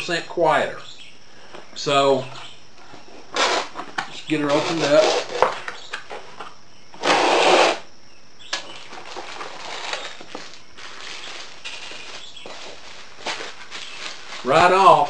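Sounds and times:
loud cardboard scrape: 3.3 - 5.4, 7.0 - 7.9
cardboard and packing rustling: 8.6 - 15.0.

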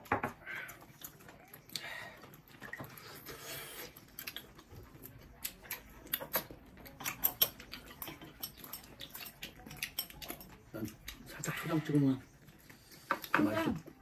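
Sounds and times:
chewing and lip smacking: 0.4 - 14.0
utensils clinking: 5.5 - 13.9.

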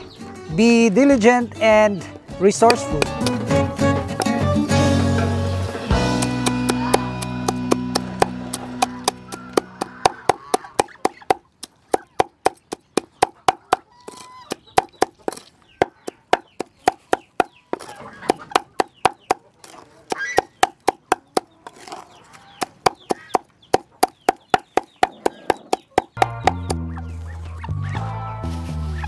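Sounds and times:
cleaver chopping on board: 2.6 - 4.4, 6.2 - 19.4, 20.1 - 21.5, 22.6 - 26.8
poultry calls: 8.0 - 28.2.

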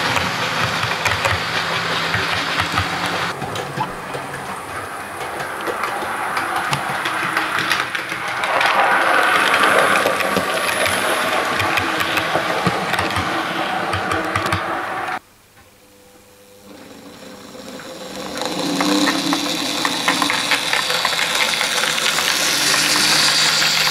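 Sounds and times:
model train motor whirring: 0.0 - 15.2, 16.5 - 23.9
wheels clicking over rail joints: 0.0 - 15.2, 16.6 - 23.9.

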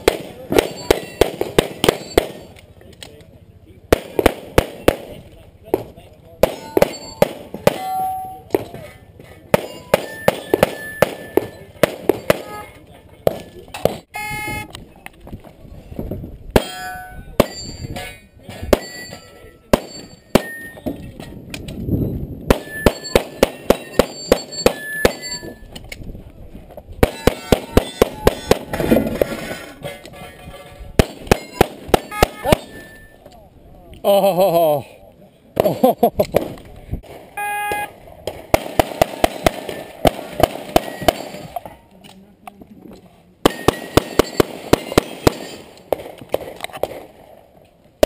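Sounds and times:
metallic ring of steel targets: 0.5 - 2.7, 6.4 - 12.8, 16.6 - 21.4, 22.6 - 25.8, 27.1 - 33.3, 40.7 - 41.9, 43.5 - 45.8.

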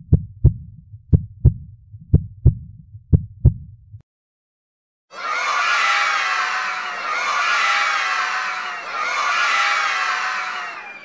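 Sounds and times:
heartbeat thumps: 0.0 - 4.0
crowd screaming and cheering: 5.1 - 11.0.

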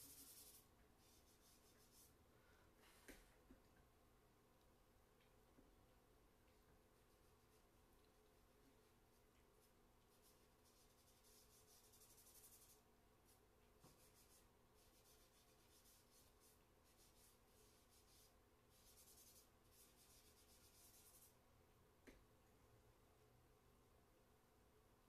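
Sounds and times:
charcoal scratching on paper: 0.0 - 2.1, 8.4 - 21.4.

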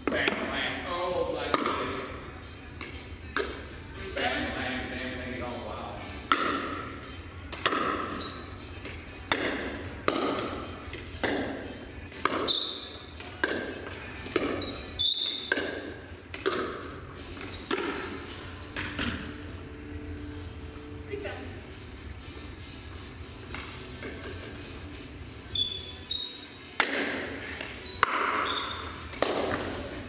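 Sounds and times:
ball bouncing on hard floor: 6.3 - 6.8, 7.5 - 18.0
paddles striking plastic ball: 7.5 - 8.1, 8.8 - 11.6
short high squeaks: 14.6 - 15.5, 25.5 - 26.6, 27.9 - 29.0.

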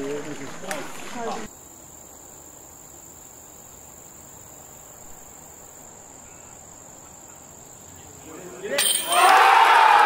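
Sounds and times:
insects trilling: 0.0 - 10.0.

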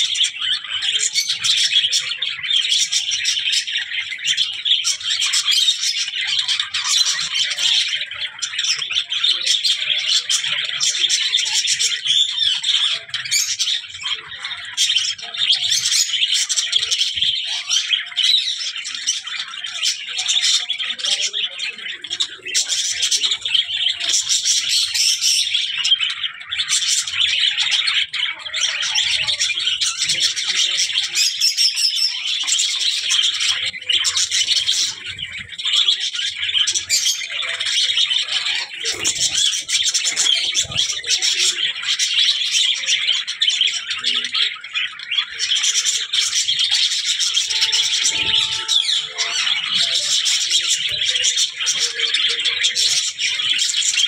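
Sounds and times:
budgerigars chattering: 0.0 - 54.0.

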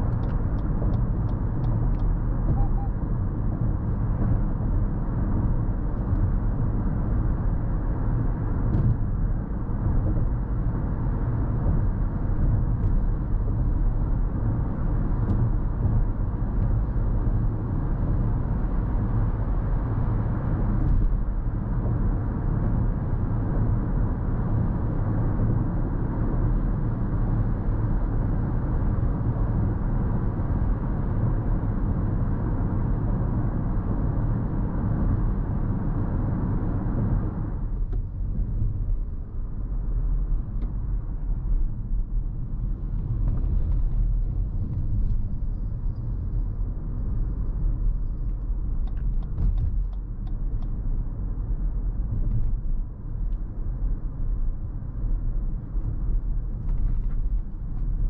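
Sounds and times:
road and tyre rumble: 0.0 - 58.0.

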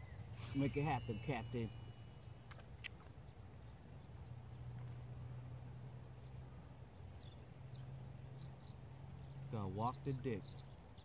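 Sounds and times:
faint short high chirps: 0.0 - 2.6
insect trill: 0.0 - 10.6
low steady hum: 0.0 - 11.0.

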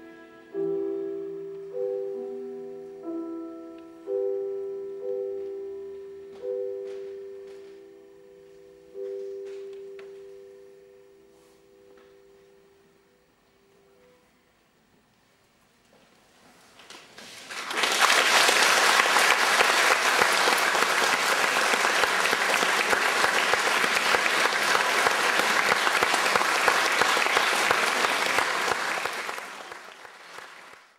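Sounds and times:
audience applauding: 17.4 - 30.9.

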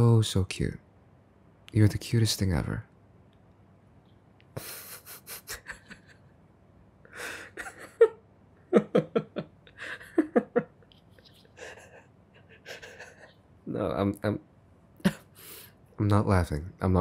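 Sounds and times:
man laughing under breath: 4.6 - 6.4, 7.1 - 10.8, 11.5 - 13.4, 15.0 - 15.6.

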